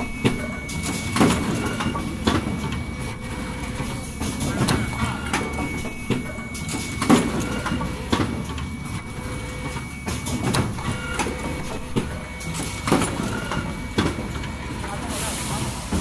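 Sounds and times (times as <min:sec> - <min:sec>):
machine hum: 0:00.0 - 0:16.0
thin steady tone: 0:08.9 - 0:10.1, 0:14.8 - 0:15.7.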